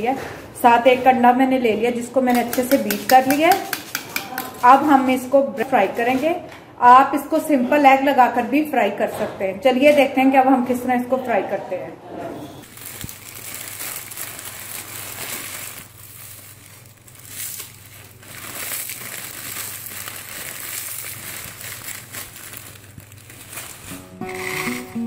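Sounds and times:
plastic packet rustling: 12.6s - 25.0s
dry noodles crushed by fingers: 12.7s - 24.7s
dry noodles pouring onto a plate: 12.7s - 25.0s.

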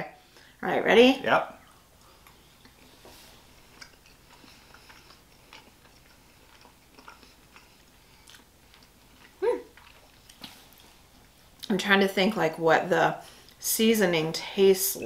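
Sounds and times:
people chewing food: 1.6s - 11.7s.

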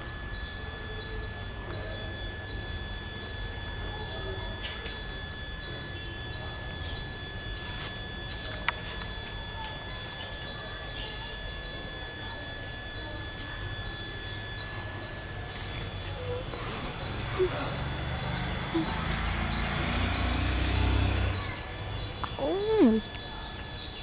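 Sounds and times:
high-pitched whines: 0.0s - 24.0s
high repeating chirp: 9.1s - 24.0s.

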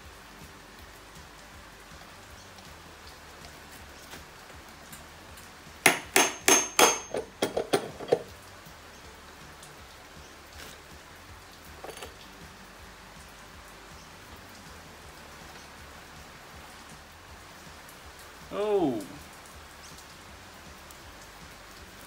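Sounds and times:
hammer blows on metal: 5.9s - 7.4s.

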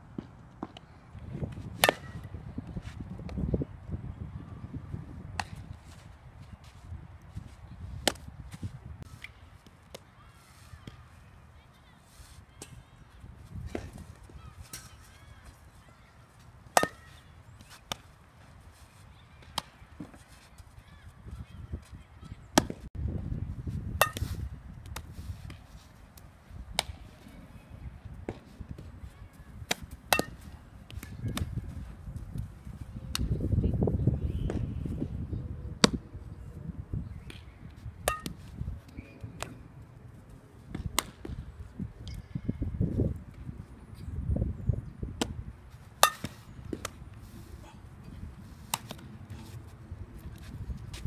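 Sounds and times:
wind rumble on microphone: 1.1s - 9.1s, 12.8s - 14.5s, 21.0s - 25.8s, 26.4s - 40.0s, 40.6s - 45.9s, 46.5s - 51.0s
ball struck and caught: 1.6s - 2.3s, 5.3s - 5.7s, 8.0s - 8.3s, 16.7s - 18.1s, 24.0s - 25.6s, 26.7s - 27.0s, 29.7s - 31.5s, 35.8s - 36.0s, 37.2s - 39.6s, 40.7s - 41.4s, 45.2s - 45.4s, 46.0s - 47.0s, 48.6s - 49.1s
metal bat hitting softball: 1.8s - 2.3s, 16.7s - 17.2s, 24.0s - 24.4s, 29.7s - 30.5s, 38.0s - 38.4s, 46.0s - 46.9s.

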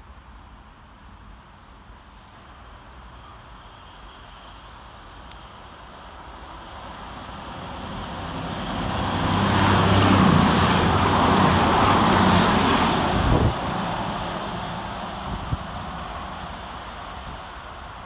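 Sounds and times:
diesel train passing: 5.2s - 18.0s.

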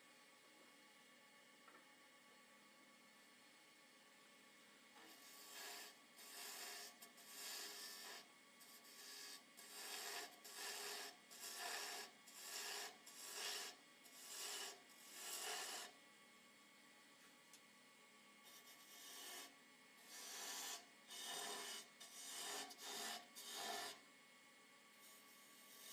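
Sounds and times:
lathe tool scraping wood: 5.0s - 16.0s, 18.5s - 24.0s, 25.0s - 25.9s.

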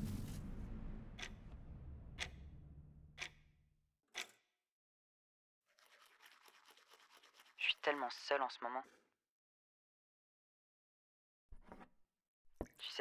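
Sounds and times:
low drone: 0.0s - 3.5s
clock ticking: 1.2s - 1.4s, 2.1s - 3.5s.

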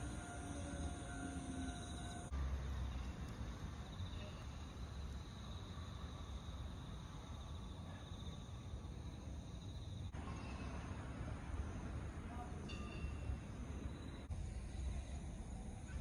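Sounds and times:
insects chirring: 0.0s - 10.7s.

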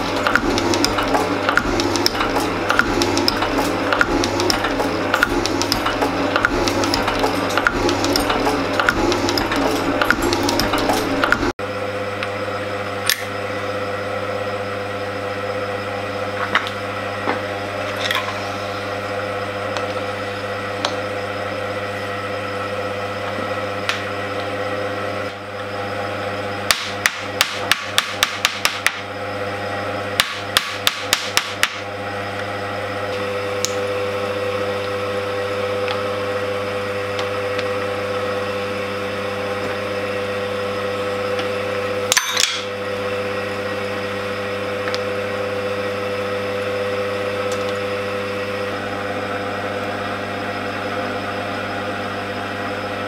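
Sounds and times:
metal shaper cutting steel: 0.0s - 11.5s
machine hum: 0.0s - 53.0s.

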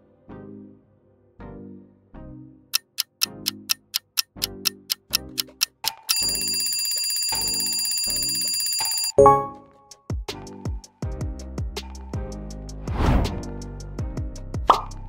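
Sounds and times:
looping music beat: 2.8s - 6.4s
clock ticking: 2.8s - 9.2s
bell ringing: 5.2s - 9.7s.

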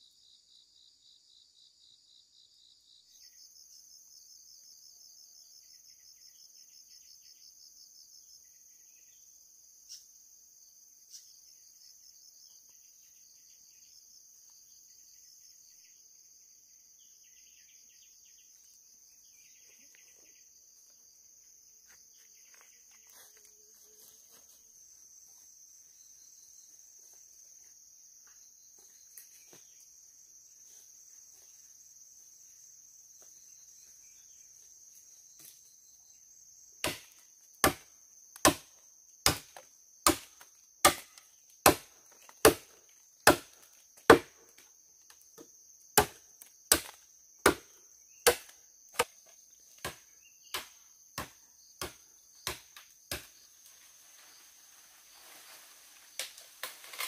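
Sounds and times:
insects chirring: 0.0s - 57.0s
blade chopping wood: 36.8s - 44.6s, 46.0s - 53.3s.

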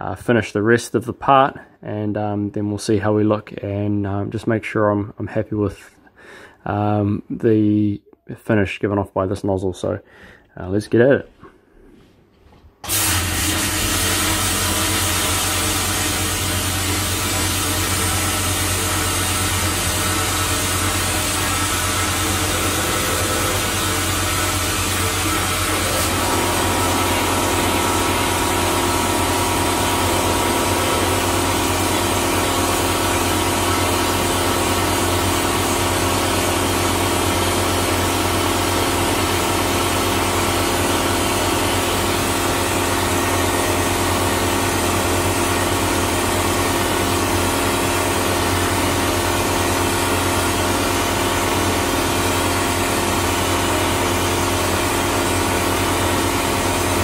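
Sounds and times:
steady machine hum: 12.8s - 57.0s
hiss of compressed air jetting: 12.9s - 33.1s.

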